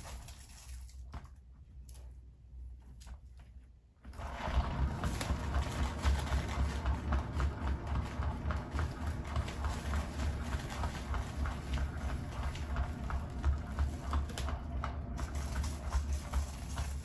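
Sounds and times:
low motor hum: 4.0 - 17.0.

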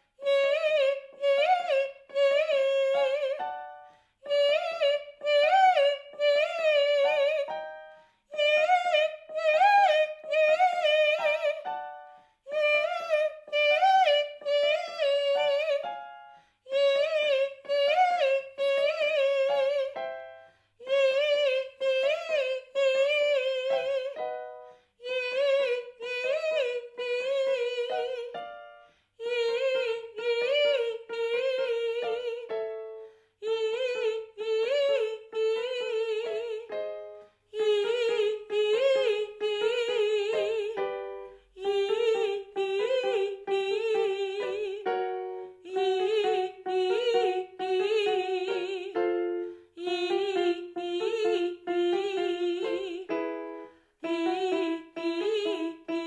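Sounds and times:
woman singing vocal runs: 12.5 - 15.9, 29.2 - 32.6, 33.4 - 56.0.

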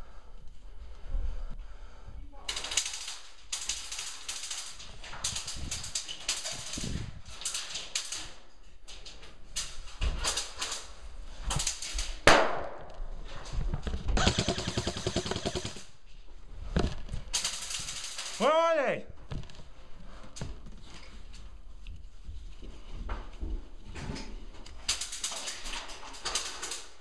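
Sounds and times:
airsoft guns firing: 2.5 - 6.9, 11.6 - 12.8, 14.2 - 15.9, 17.3 - 18.6.

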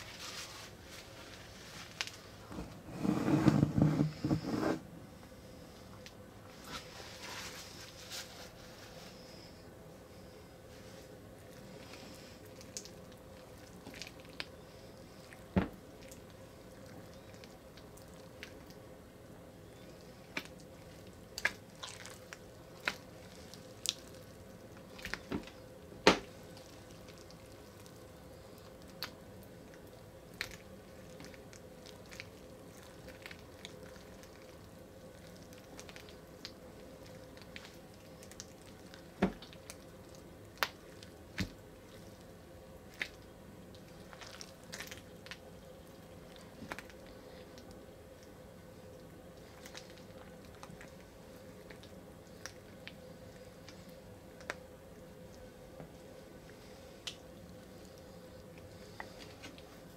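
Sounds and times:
slime squelching: 19.7 - 55.5.

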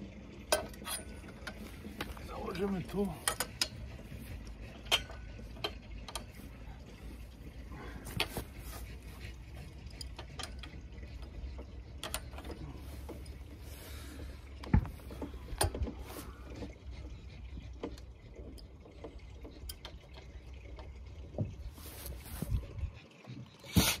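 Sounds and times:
metal clicks and knocks: 3.1 - 6.4, 9.9 - 13.4.

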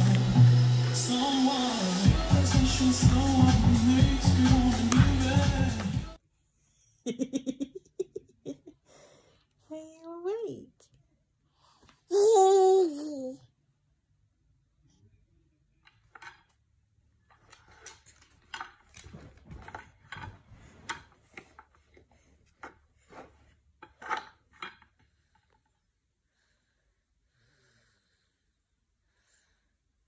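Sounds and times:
wooden toy pieces clacking: 15.8 - 16.6, 17.3 - 20.3.

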